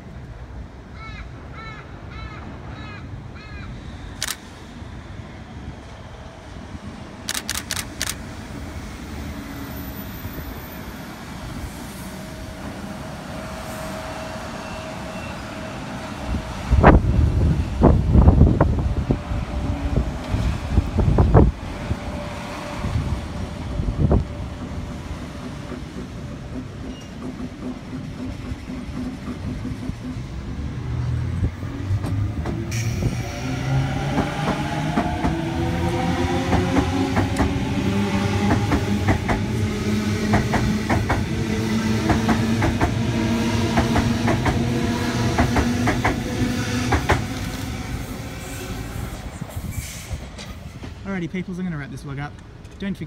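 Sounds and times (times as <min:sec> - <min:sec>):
train wheels clicking over rail joints: 0:24.5 - 0:31.1, 0:31.9 - 0:33.2, 0:38.3 - 0:43.0, 0:43.6 - 0:47.5.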